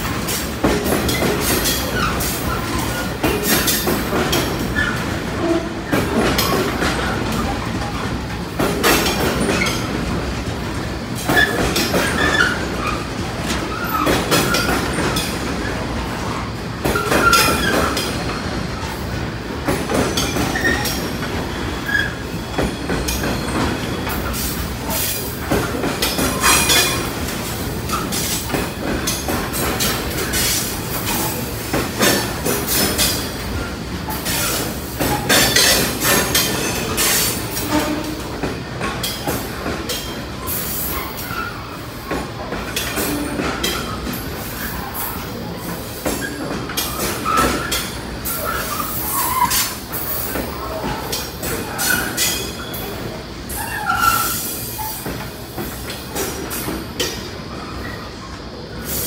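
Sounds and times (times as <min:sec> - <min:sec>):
wheels clacking over rail joints: 0:00.0 - 0:58.0
train wagons rumbling: 0:00.0 - 0:59.0
wheel squeals: 0:11.3 - 0:13.0, 0:20.2 - 0:25.1, 0:46.1 - 0:52.9, 0:53.5 - 0:55.2.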